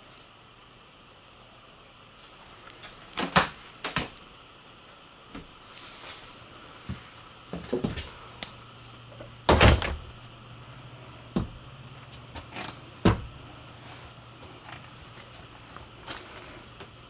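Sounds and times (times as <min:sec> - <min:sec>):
door knocks and clunks: 0:09.5 - 0:10.1, 0:13.0 - 0:13.3.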